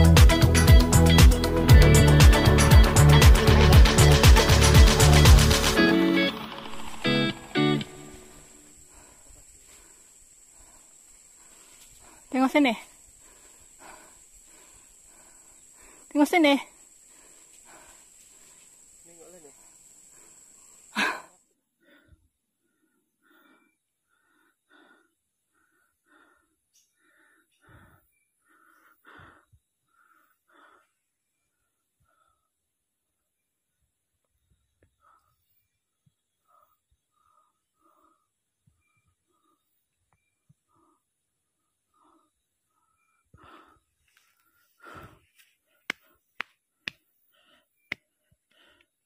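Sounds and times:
faint heavy panting: 8.6 - 32.6, 36.3 - 39.9, 40.5 - 46.3.

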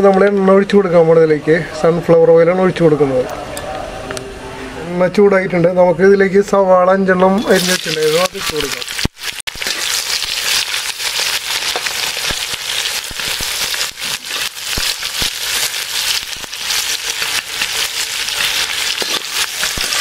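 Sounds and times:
onions sizzling in oil: 7.5 - 20.0
metal spatula scraping a pan: 16.3 - 20.0.

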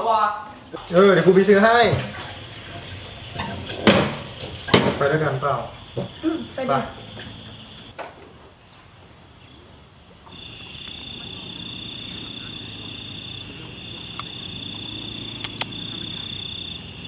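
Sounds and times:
night insects chirping: 0.0 - 17.0
low vehicle engine hum: 10.4 - 17.0.

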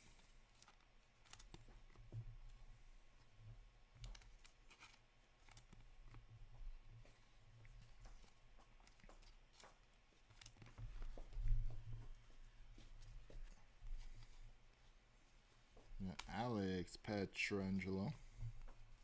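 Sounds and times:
cards clicking and rustling: 0.0 - 2.1, 3.9 - 11.9.

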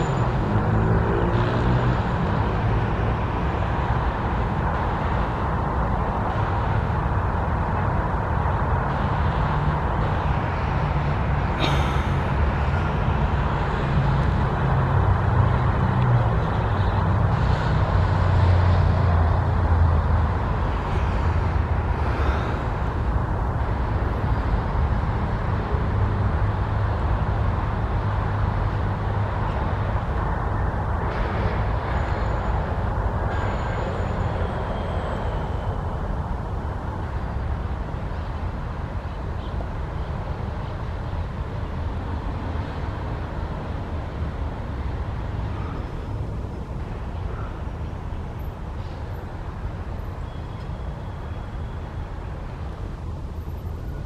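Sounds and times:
road traffic engine hum: 0.0 - 54.0.

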